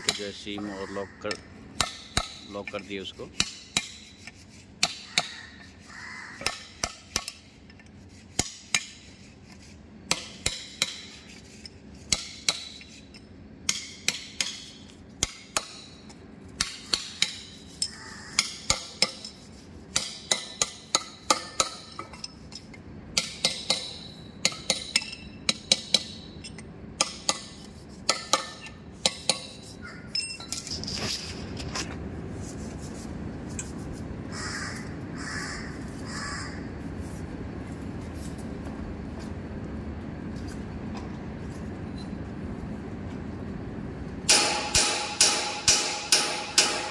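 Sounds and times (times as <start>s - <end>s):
steel rod tapping metal ring: 23.2s - 29.6s, 44.3s - 46.9s.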